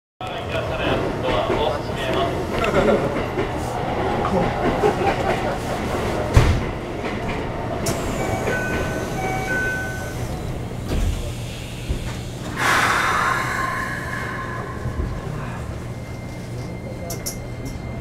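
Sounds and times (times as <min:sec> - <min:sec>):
sliding train doors closing: 0:01.4 - 0:17.3
loud hiss: 0:12.5 - 0:14.9
steady tones: 0:12.5 - 0:17.7.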